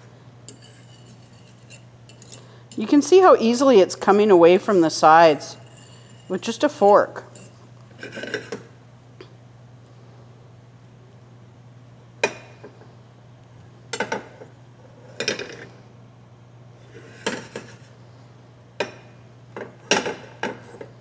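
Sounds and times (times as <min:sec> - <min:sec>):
steady low hum: 0:00.0 - 0:21.0
metal fork scraping a pan: 0:00.5 - 0:02.9, 0:05.6 - 0:08.6.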